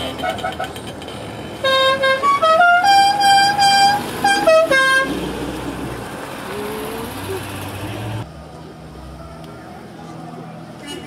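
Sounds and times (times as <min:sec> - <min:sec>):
passing car engines: 0:00.0 - 0:11.0
musical car horn playing a tune: 0:01.6 - 0:05.2.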